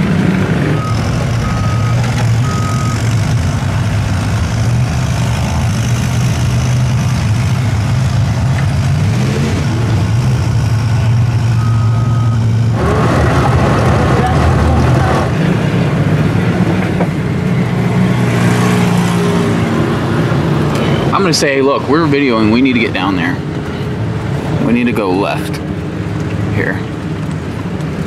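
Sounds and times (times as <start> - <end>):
diesel engine running: 0.0 - 28.0
warning alarm beeps: 0.8 - 3.1, 11.6 - 12.5.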